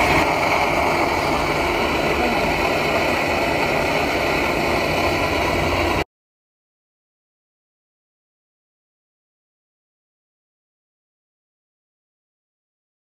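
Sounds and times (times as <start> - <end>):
gas stove flame rushing: 0.0 - 6.1.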